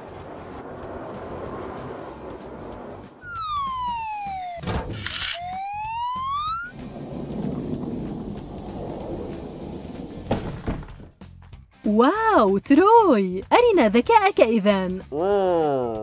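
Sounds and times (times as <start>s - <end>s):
whine gliding in pitch: 3.2s - 7.0s
mechanical clunk: 4.6s - 5.2s.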